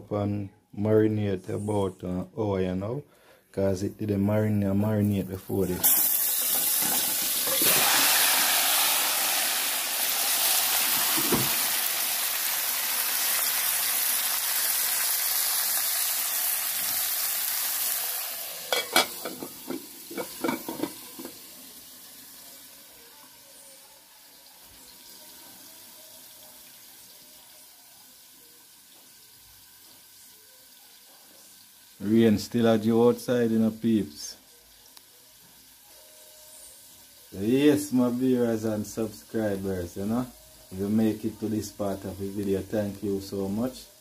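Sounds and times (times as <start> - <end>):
chicken sizzling in oil: 5.0 - 44.0
metal clanks on pot: 18.7 - 21.4.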